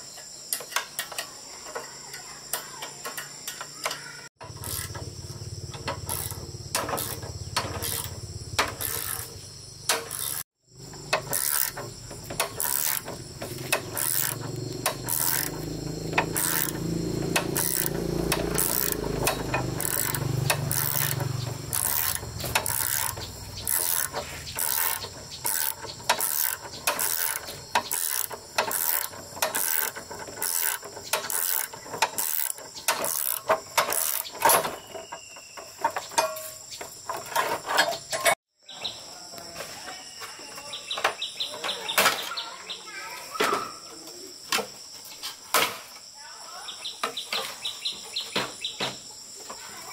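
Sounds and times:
sharp mechanical clicks and clanks: 0:02.5 - 0:34.7.

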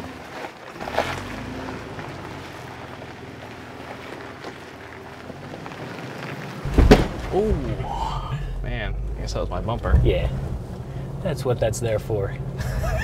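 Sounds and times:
car engine running at low revs: 0:00.0 - 0:13.0
tyres knocking on stone: 0:06.7 - 0:07.4.

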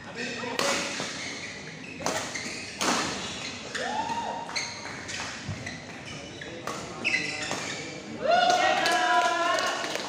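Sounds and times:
shoe squeaking on court floor: 0:00.2 - 0:08.2.

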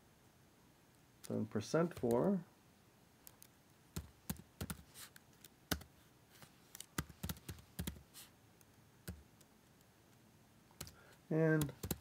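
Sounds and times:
keyboard typing: 0:01.8 - 0:02.3, 0:03.2 - 0:05.9, 0:06.7 - 0:09.5, 0:10.8 - 0:12.0.

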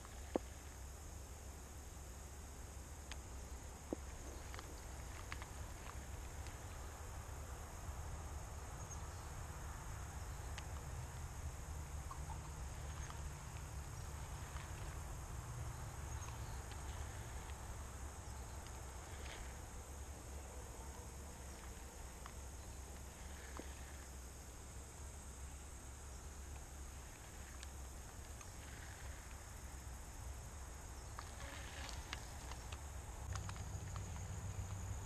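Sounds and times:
insects chirring: 0:00.0 - 0:35.0
low steady rumble: 0:00.0 - 0:35.0
faint ticks: 0:03.0 - 0:06.9, 0:10.2 - 0:11.3, 0:12.0 - 0:24.4, 0:25.4 - 0:30.2, 0:31.0 - 0:35.0.

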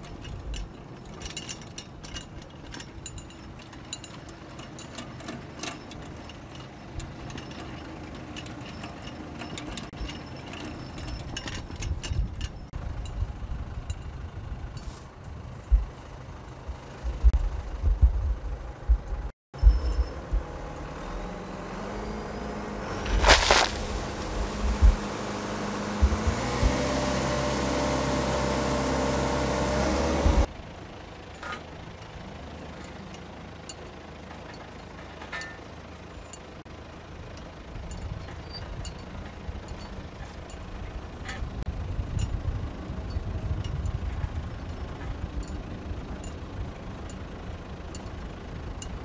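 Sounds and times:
engine running: 0:00.0 - 0:49.0.

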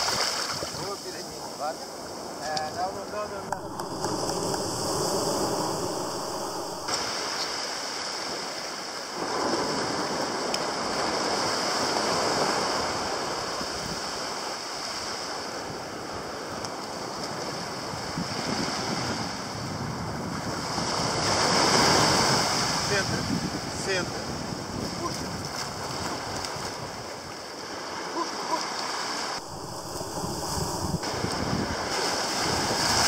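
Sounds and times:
small waves breaking on shore: 0:00.0 - 0:33.0.

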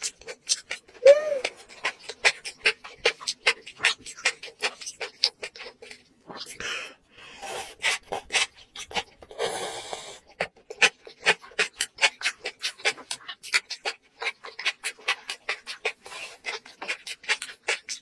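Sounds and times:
wet chewing: 0:00.0 - 0:18.0
wet slurping: 0:00.0 - 0:18.0.

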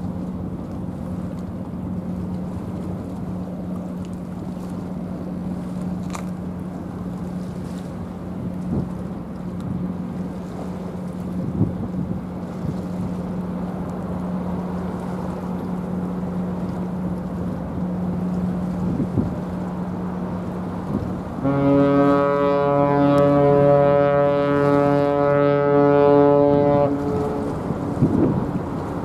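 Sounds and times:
low steady hum: 0:00.0 - 0:29.0
ship horn blast: 0:05.3 - 0:29.0
wind on microphone: 0:08.4 - 0:13.3, 0:18.2 - 0:29.0.

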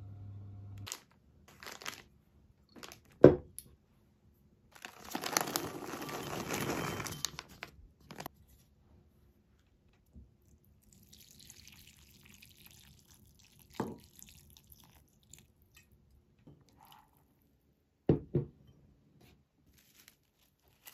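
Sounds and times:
plastic bag crinkling: 0:00.8 - 0:02.1, 0:02.7 - 0:03.2, 0:04.8 - 0:08.3, 0:19.7 - 0:20.9
raisins tipped into glass bowl: 0:05.4 - 0:07.6.

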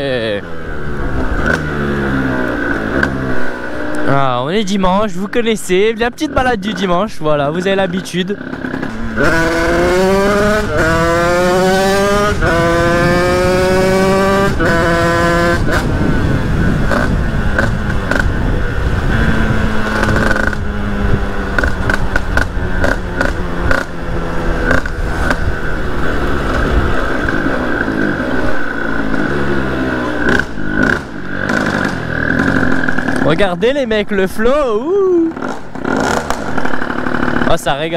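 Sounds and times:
motorcycle engine accelerating: 0:00.0 - 0:37.9.

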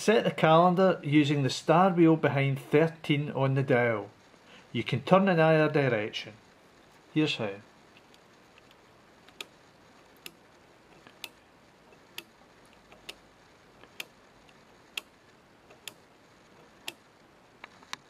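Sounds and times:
time switch dial clicking: 0:09.3 - 0:09.6, 0:10.2 - 0:13.2, 0:13.8 - 0:16.0, 0:16.6 - 0:17.0.

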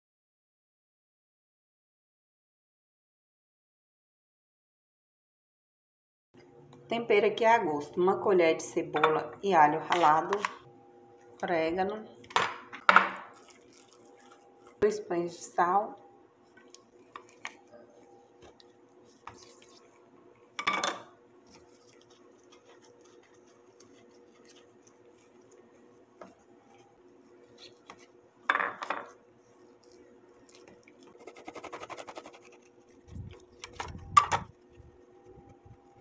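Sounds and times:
faint steady hum: 0:06.4 - 0:36.0
rapid scraping rasp: 0:31.0 - 0:33.7.

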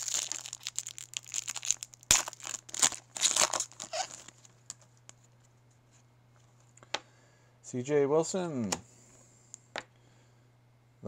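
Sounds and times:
foil wrapper tearing and crinkling: 0:00.0 - 0:04.5.

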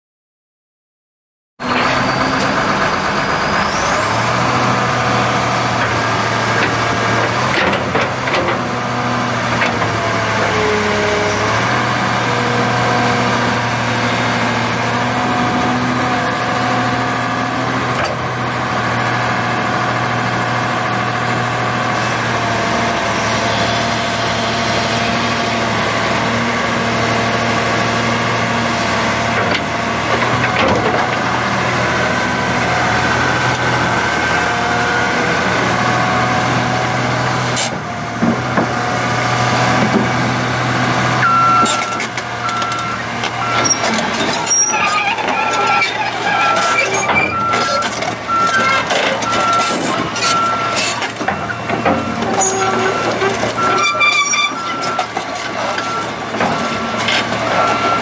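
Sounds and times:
diesel engine running: 0:01.6 - 0:58.0.

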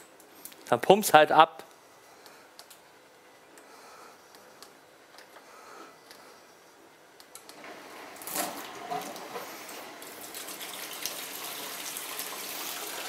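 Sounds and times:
water gushing into plastic bucket: 0:10.0 - 0:13.0.

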